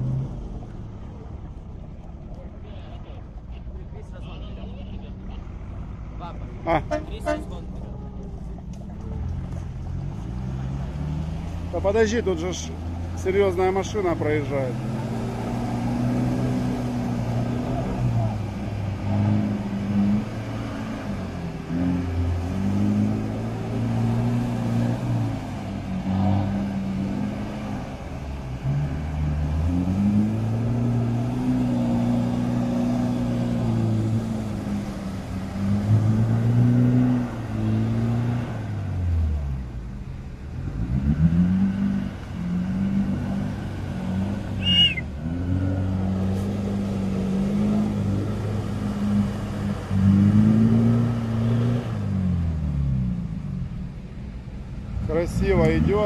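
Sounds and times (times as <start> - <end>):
off-road vehicle engine revving: 0.0 - 1.2, 2.7 - 56.0.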